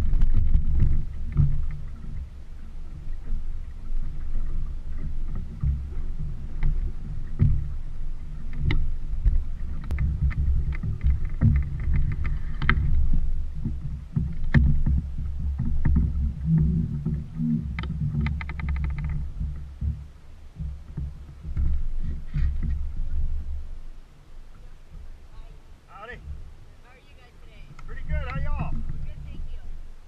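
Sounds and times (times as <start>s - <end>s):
water running along hull: 0.0s - 30.0s
rapid ticks: 8.5s - 22.8s.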